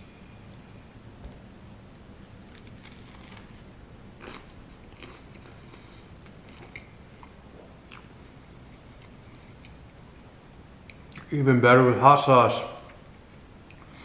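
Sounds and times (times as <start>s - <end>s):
person chewing toast: 2.5s - 8.1s.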